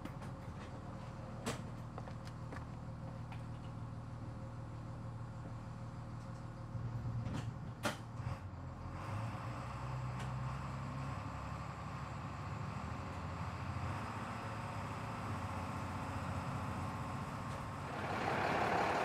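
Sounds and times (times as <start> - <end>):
bus driving rumble: 0.0 - 19.0
bus engine idling: 11.6 - 19.0.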